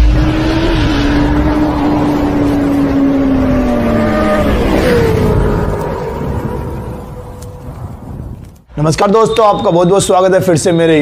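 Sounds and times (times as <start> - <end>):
motorcycle engine drone: 0.0 - 8.5.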